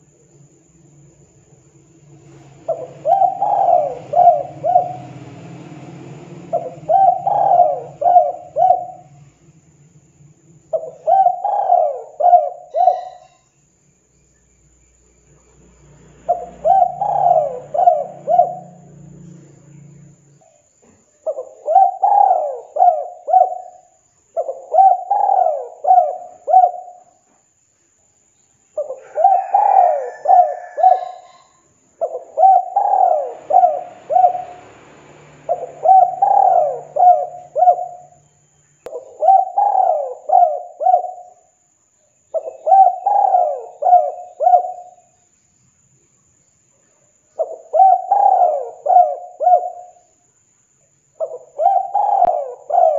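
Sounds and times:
dove cooing: 0:02.3 - 0:09.4, 0:10.7 - 0:13.4, 0:16.3 - 0:19.1, 0:21.2 - 0:27.1, 0:28.8 - 0:38.2, 0:38.9 - 0:41.5, 0:42.3 - 0:45.1, 0:47.4 - 0:50.0, 0:51.2 - 0:52.9.

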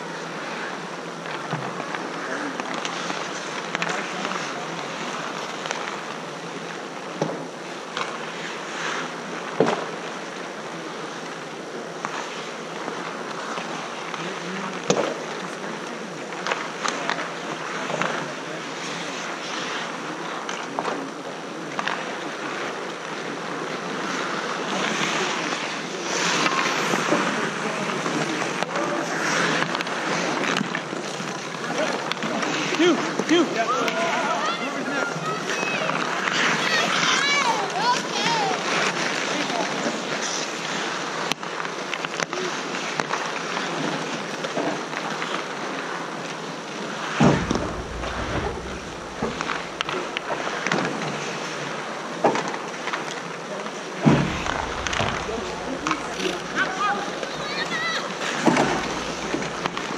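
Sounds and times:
skates scraping on ice: 0:00.1 - 0:06.7, 0:11.7 - 0:21.1, 0:23.9 - 0:34.2, 0:35.0 - 0:46.0, 0:46.7 - 0:51.6, 0:54.0 - 0:59.9
hockey sticks and puck clacking: 0:01.2 - 0:06.1, 0:35.4 - 0:43.7, 0:54.0 - 0:59.9.

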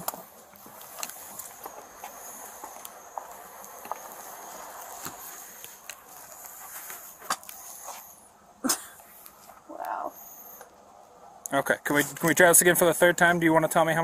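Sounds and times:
handling clicks and rustles: 0:00.0 - 0:08.2, 0:08.9 - 0:09.7, 0:11.9 - 0:12.7
steady high hiss: 0:00.0 - 0:14.0.

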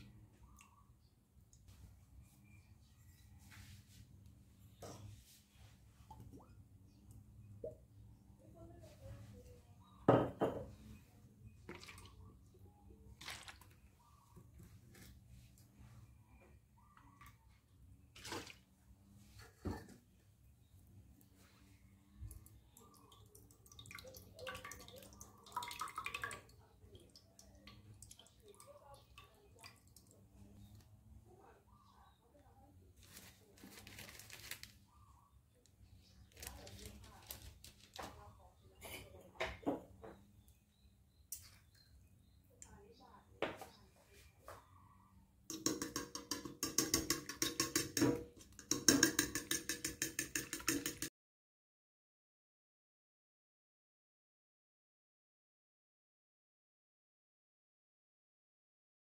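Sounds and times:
soft drips: 0:00.0 - 0:09.5, 0:10.8 - 0:19.2, 0:20.8 - 0:35.0
milk pouring into bowl: 0:11.6 - 0:12.5, 0:13.1 - 0:13.9, 0:22.3 - 0:31.1, 0:45.5 - 0:51.1
fork beating eggs in a bowl: 0:45.5 - 0:51.1.

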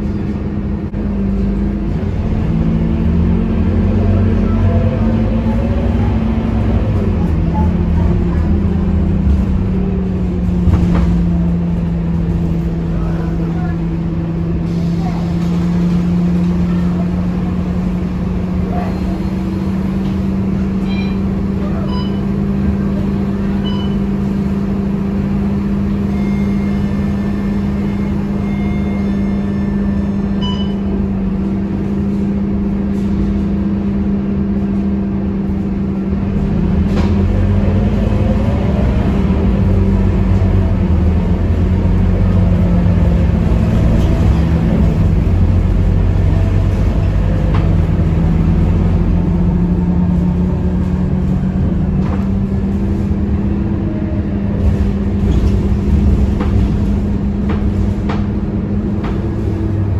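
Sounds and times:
bus diesel engine droning: 0:00.0 - 0:59.9.

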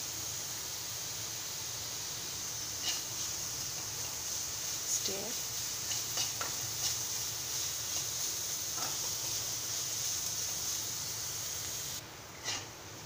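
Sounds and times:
onions sizzling in hot oil: 0:00.0 - 0:13.0
metal spoon scraping a pan: 0:02.8 - 0:03.3, 0:05.4 - 0:09.4, 0:12.4 - 0:12.7.

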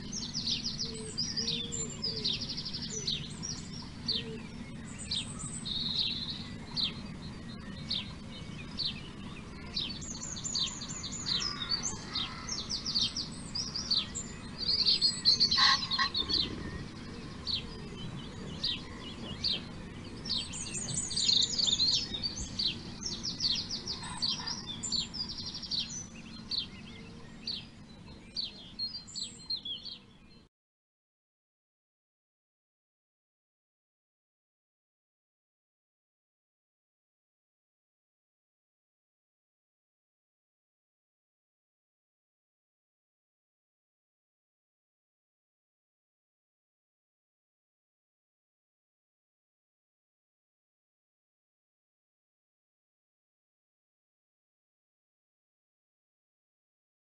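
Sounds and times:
small birds chirping: 0:00.0 - 0:30.5
steady low hum: 0:00.0 - 0:30.5.

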